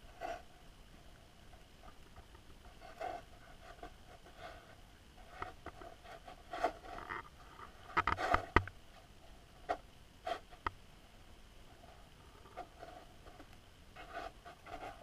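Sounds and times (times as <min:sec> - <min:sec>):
underwater clicks and knocks: 0:07.9 - 0:08.8.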